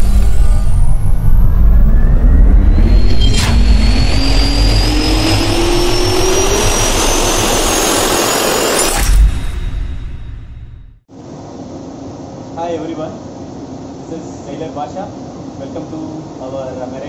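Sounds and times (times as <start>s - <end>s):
jet engine spooling up: 0.0s - 10.6s.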